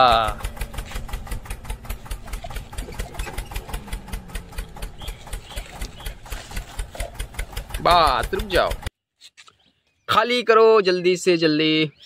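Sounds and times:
fast regular clicking: 0:00.3 - 0:08.9.

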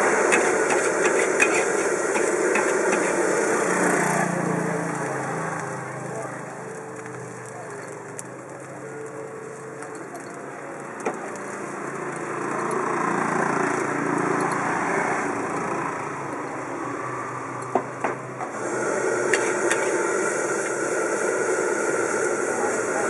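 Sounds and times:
metal spatula scraping wok: 0:00.0 - 0:04.2, 0:19.3 - 0:20.0
rice sizzling in a wok: 0:00.0 - 0:17.6, 0:18.2 - 0:23.0
engine-like drone: 0:00.0 - 0:23.0
spatula clanking on wok: 0:00.3 - 0:03.2.

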